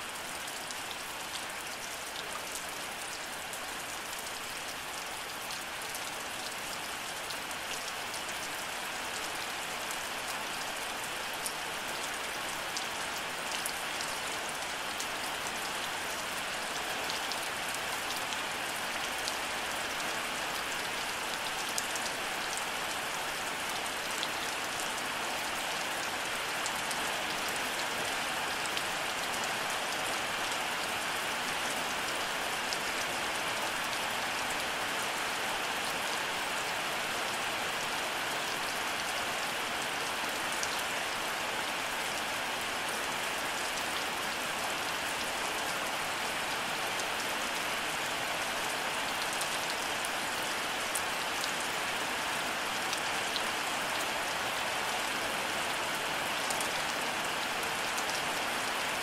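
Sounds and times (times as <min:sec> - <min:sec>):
steady rain hiss: 0:00.0 - 0:59.0.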